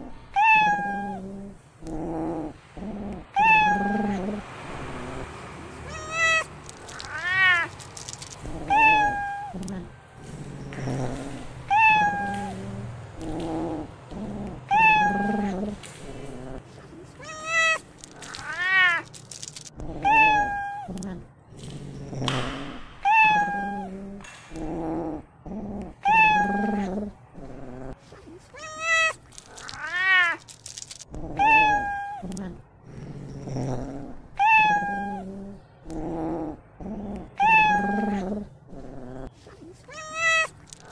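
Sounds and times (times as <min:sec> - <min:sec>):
soft low cat sounds: 0:00.0 - 0:40.9
young cat meowing: 0:00.3 - 0:01.3, 0:03.3 - 0:04.2, 0:05.8 - 0:09.9, 0:11.7 - 0:12.6, 0:14.7 - 0:15.8, 0:17.2 - 0:21.2, 0:23.0 - 0:24.0, 0:26.0 - 0:27.0, 0:28.5 - 0:30.5, 0:31.3 - 0:32.6, 0:34.4 - 0:35.3, 0:37.4 - 0:38.3, 0:39.8 - 0:40.9.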